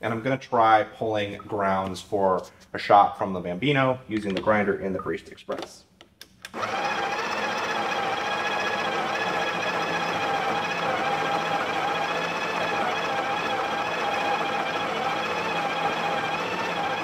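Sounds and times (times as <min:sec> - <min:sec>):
coffee grinder grinding beans: 0:06.5 - 0:17.0.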